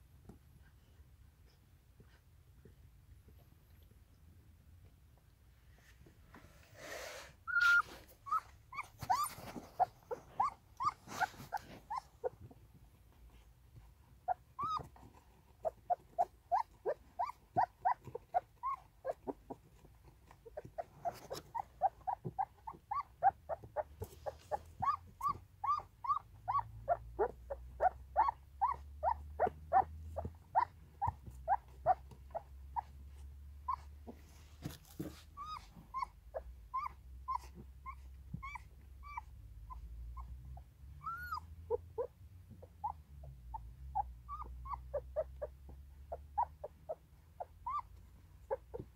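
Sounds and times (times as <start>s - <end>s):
puppies squeaking and whimpering: 7.5s - 12.6s, 14.3s - 19.4s, 20.4s - 33.0s, 33.6s - 40.4s, 41.0s - 48.9s.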